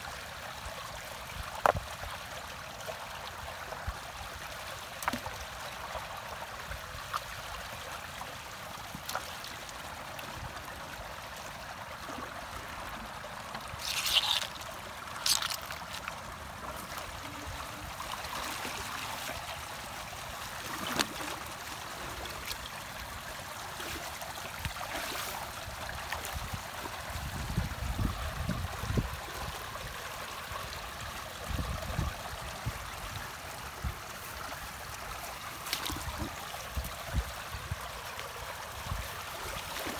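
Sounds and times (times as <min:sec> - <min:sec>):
sharp splashes: 0:13.8 - 0:16.0.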